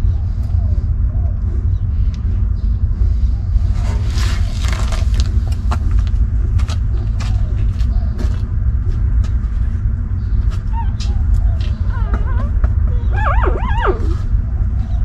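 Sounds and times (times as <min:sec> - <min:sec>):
steady low rumble: 0:00.0 - 0:15.0
faint puppy squeaks: 0:10.6 - 0:15.0.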